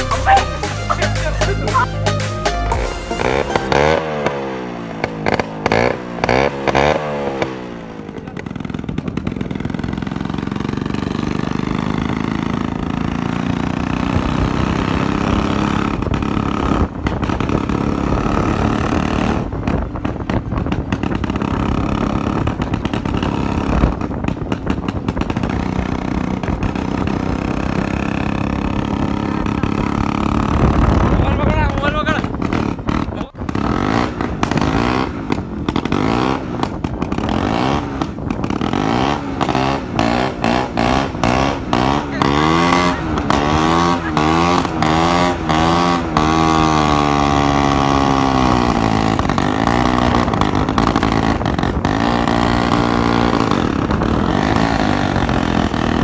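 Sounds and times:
music with sweeping tones: 0.0 - 4.8
motorcycle engine without silencer: 0.0 - 56.0.

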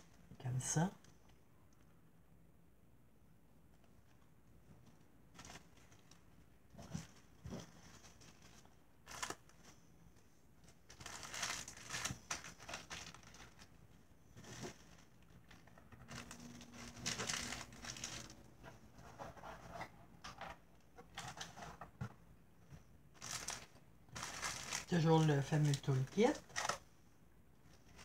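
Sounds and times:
plastic packaging crinkling: 5.3 - 6.2, 7.9 - 9.7, 10.8 - 13.8, 14.5 - 18.4, 23.2 - 26.8.

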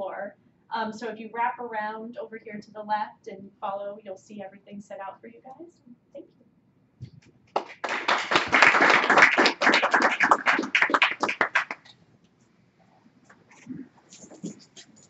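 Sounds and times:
audience applauding: 7.6 - 11.9.

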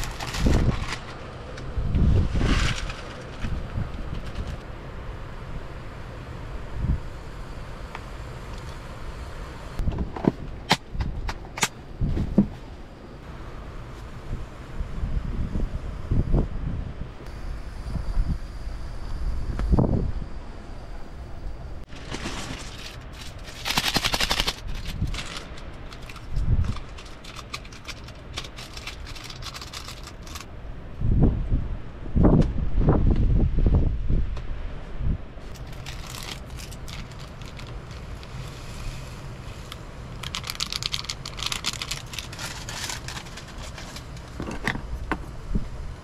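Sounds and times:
packet crinkling: 0.0 - 1.2, 21.9 - 30.5, 35.5 - 38.5, 39.6 - 44.4
plastic packet crackling: 0.0 - 1.2, 21.9 - 30.5, 35.5 - 38.4, 39.6 - 44.3
steady low rumble: 0.0 - 46.0.

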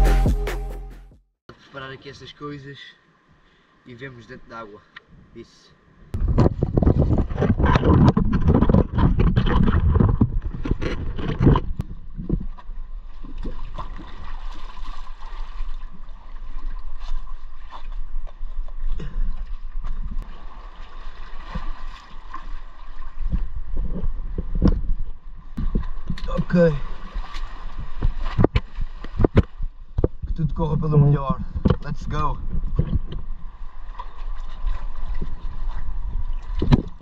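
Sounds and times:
sea water splashing: 12.4 - 23.8, 25.6 - 29.8, 32.7 - 37.0.

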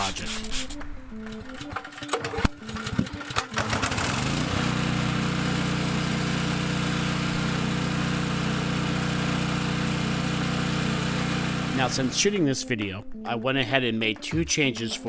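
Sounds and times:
pull-start knocks: 1.2 - 4.9
generator engine running: 1.3 - 12.2.

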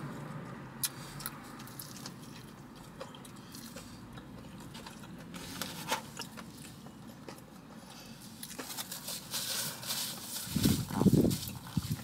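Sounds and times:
person chewing food: 0.8 - 9.1.

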